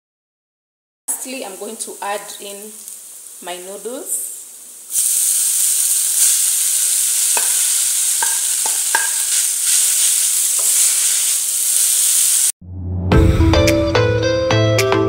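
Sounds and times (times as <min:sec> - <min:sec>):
vegetables sizzling in a pan: 0:01.1 - 0:12.6
music: 0:12.6 - 0:15.0.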